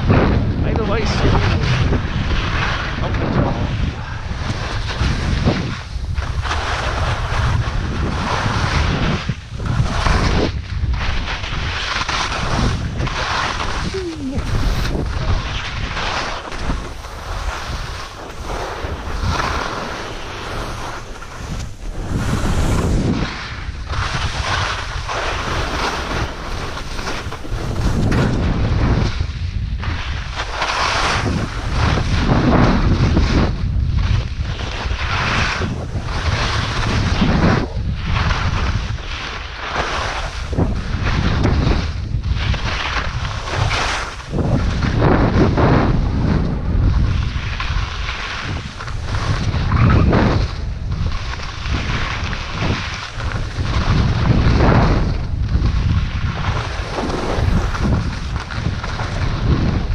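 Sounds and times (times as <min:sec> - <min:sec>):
skis carving through snow: 0:00.0 - 0:59.9
wind on microphone: 0:00.0 - 0:59.9.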